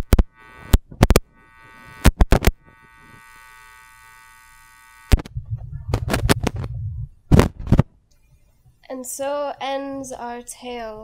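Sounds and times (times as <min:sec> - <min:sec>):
high electrical buzz: 0:00.0 - 0:07.9
low rumbling noise: 0:05.2 - 0:07.9.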